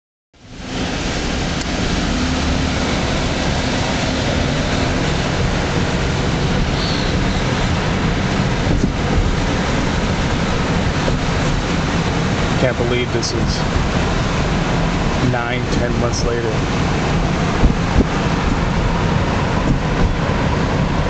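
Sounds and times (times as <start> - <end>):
low engine hum: 0.4 - 21.0
road and wind noise: 0.4 - 21.0.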